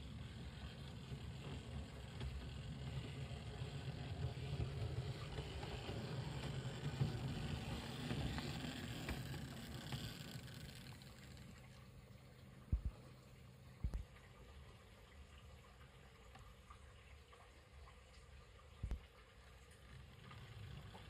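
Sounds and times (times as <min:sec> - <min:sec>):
model train motor hum: 0:00.0 - 0:12.6, 0:19.6 - 0:21.0
wheels rumbling on rails: 0:00.0 - 0:12.9.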